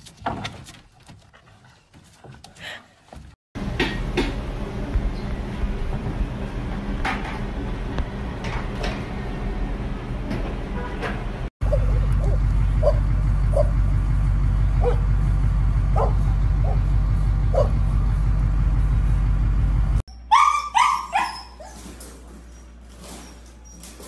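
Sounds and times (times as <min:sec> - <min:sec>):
puppy yelping: 0:11.6 - 0:13.7, 0:20.1 - 0:21.9
steady low rumble: 0:11.6 - 0:20.0
dog barking: 0:11.7 - 0:13.7, 0:14.8 - 0:15.1, 0:15.9 - 0:16.9, 0:17.5 - 0:17.8, 0:20.3 - 0:21.8.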